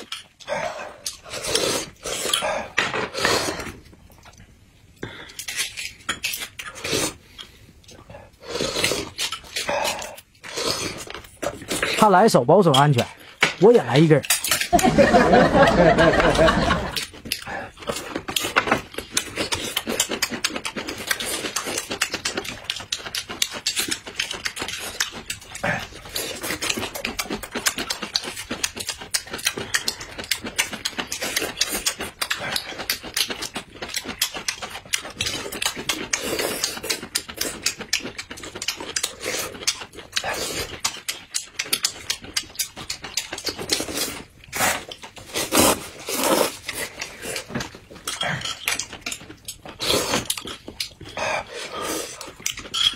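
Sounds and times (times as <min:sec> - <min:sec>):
chewing with wet mouth clicks: 0:16.9 - 0:45.6, 0:46.4 - 0:52.9
noodle slurps: 0:43.7 - 0:47.5.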